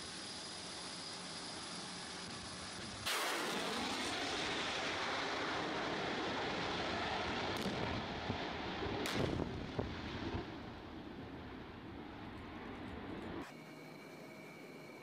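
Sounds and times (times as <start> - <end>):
fighter jets roaring overhead: 0.0 - 13.5
pyrotechnic blasts: 2.8 - 13.4.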